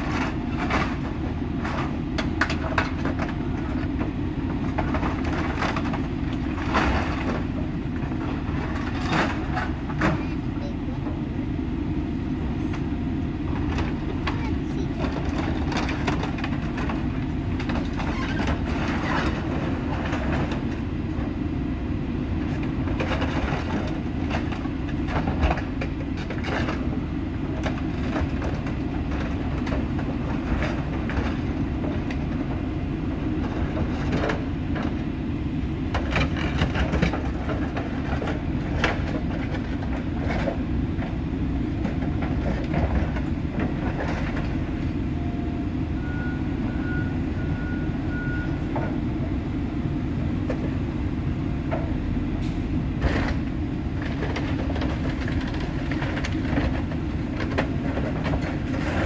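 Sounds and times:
metal clanking and crunching: 0:00.0 - 0:10.5, 0:13.5 - 0:20.8, 0:22.4 - 0:32.6, 0:35.9 - 0:45.0, 0:51.7 - 0:59.0
diesel engine rumble: 0:00.0 - 0:59.0.

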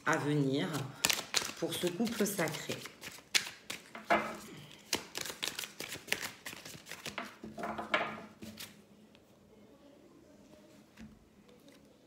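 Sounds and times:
cards being shuffled: 0:00.1 - 0:07.4, 0:08.3 - 0:08.8.

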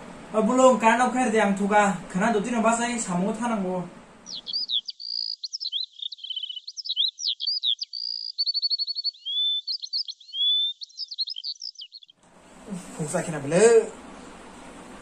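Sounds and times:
songbirds chirping and singing: 0:04.2 - 0:12.2.

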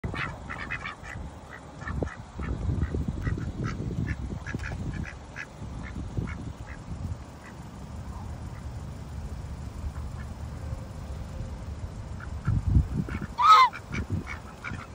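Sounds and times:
geese honking: 0:00.0 - 0:06.8, 0:12.1 - 0:14.9
ducks quacking: 0:00.0 - 0:07.6, 0:09.9 - 0:10.4, 0:12.1 - 0:14.9.

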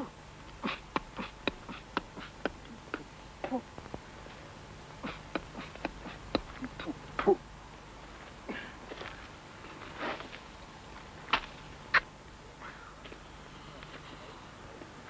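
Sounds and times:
mouth clicks and puffs: 0:00.6 - 0:03.1, 0:05.0 - 0:07.0.

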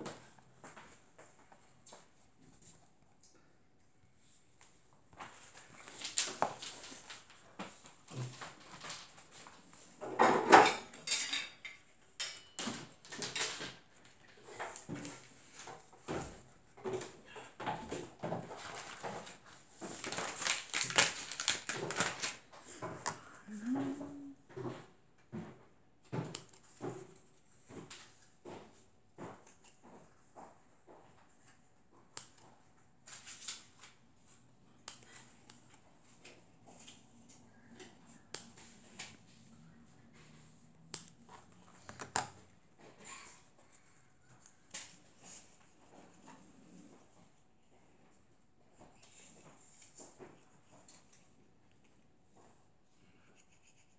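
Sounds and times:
paper sheets rustling: 0:05.2 - 0:09.9, 0:18.5 - 0:23.0
scissors snipping paper: 0:20.0 - 0:22.4, 0:32.1 - 0:32.5.

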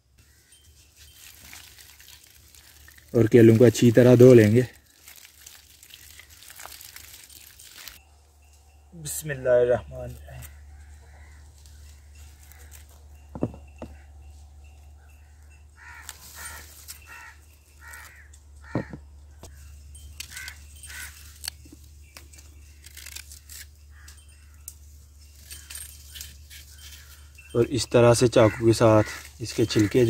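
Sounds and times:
crow cawing: 0:10.4 - 0:12.8, 0:15.2 - 0:19.6, 0:20.3 - 0:21.2, 0:28.4 - 0:29.3.

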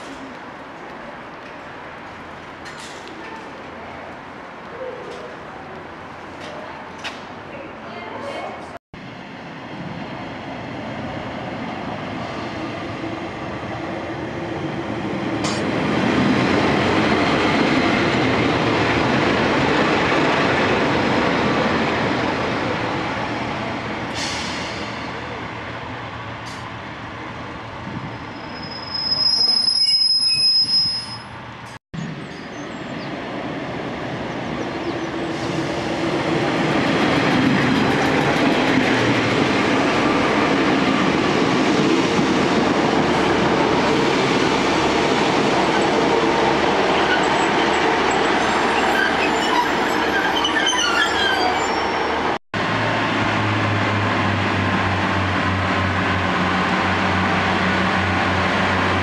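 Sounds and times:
train wheel squeal: 0:28.2 - 0:31.4, 0:48.6 - 0:52.1
train running noise: 0:30.6 - 0:59.0.

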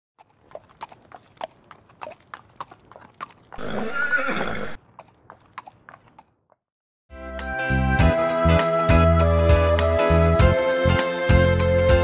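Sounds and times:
horse hooves clip-clopping: 0:00.2 - 0:06.6
horse neighing: 0:03.6 - 0:04.8.

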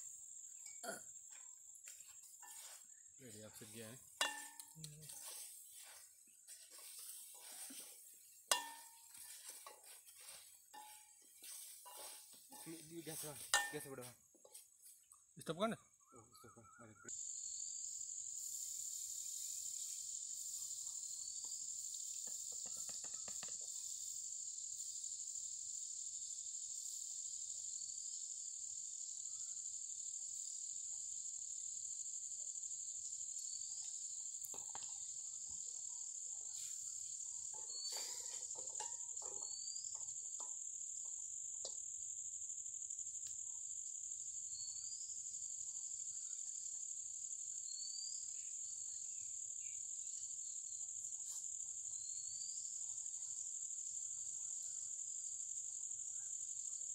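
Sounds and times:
high-pitched insect drone: 0:17.0 - 0:56.9.

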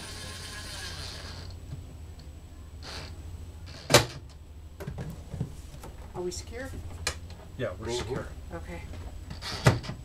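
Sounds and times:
loud burst of noise: 0:00.0 - 0:01.6.

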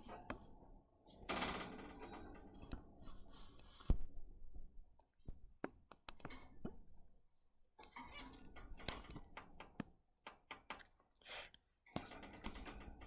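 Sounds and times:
birds clicking and scratching on wire: 0:11.9 - 0:13.0.

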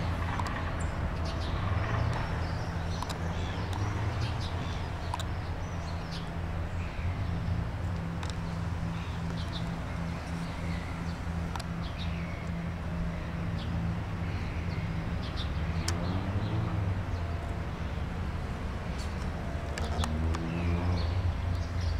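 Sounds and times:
birds chirping: 0:00.0 - 0:21.9.

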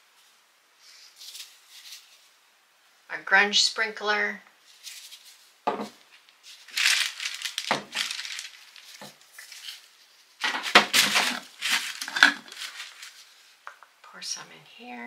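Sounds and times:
jar lid twisting scrape: 0:11.2 - 0:12.7.

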